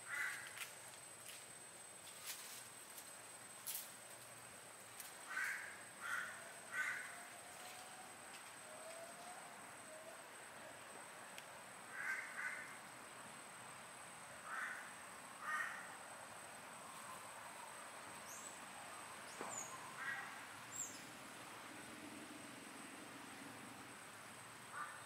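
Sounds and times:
crow cawing: 0.0s - 0.6s, 5.3s - 7.4s, 11.9s - 12.8s, 14.4s - 16.0s, 20.0s - 20.4s, 24.7s - 25.0s.

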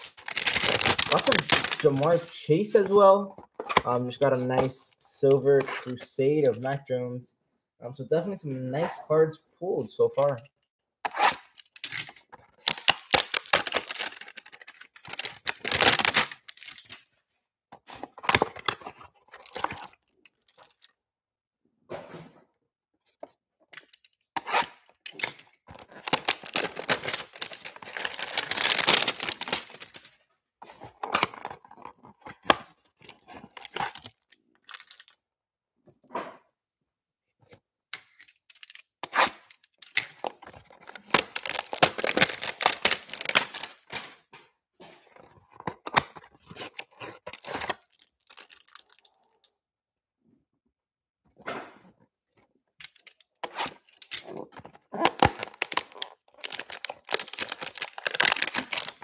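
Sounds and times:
cardboard tearing: 0.0s - 2.3s, 12.6s - 16.9s, 25.7s - 30.1s, 40.2s - 43.9s, 53.4s - 59.0s.

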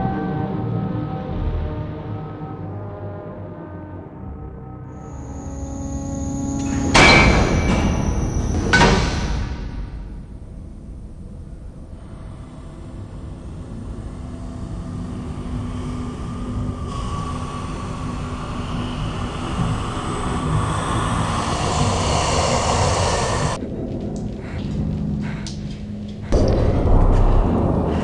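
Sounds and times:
low rumbling noise: 5.0s - 28.0s.

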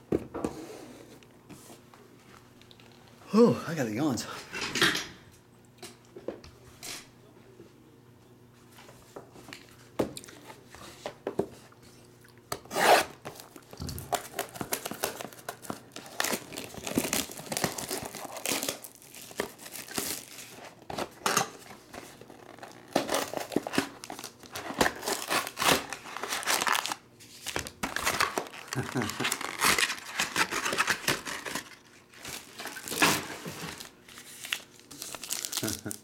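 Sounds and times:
plastic shrink-wrap tearing: 12.8s - 20.7s, 22.1s - 36.0s
foil packs handled: 13.2s - 36.0s.

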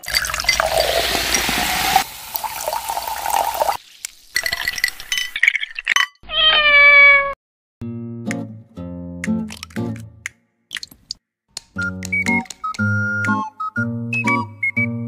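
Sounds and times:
soda poured over ice fizzing: 0.0s - 5.9s
cat meowing: 6.2s - 7.4s.

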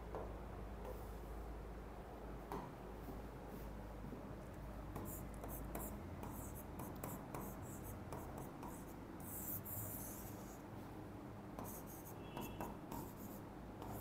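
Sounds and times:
scratchy writing strokes: 4.9s - 10.7s, 11.6s - 14.0s.

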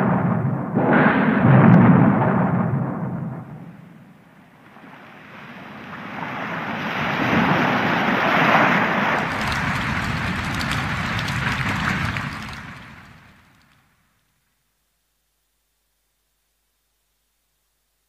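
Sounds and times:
rushing rumbling noise: 9.0s - 13.9s
fine crackle: 9.0s - 14.3s.

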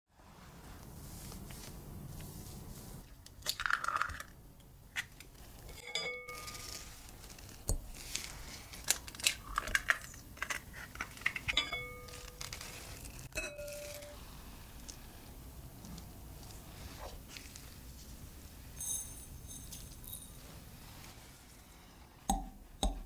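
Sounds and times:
metal clinking against glass bowl: 5.7s - 6.8s, 11.5s - 12.5s, 13.3s - 14.2s.

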